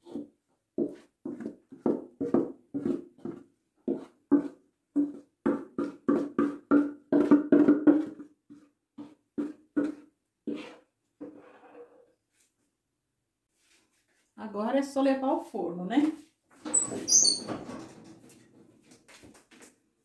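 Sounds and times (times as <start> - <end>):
wooden spoon knocking in bowl: 0.8 - 10.6.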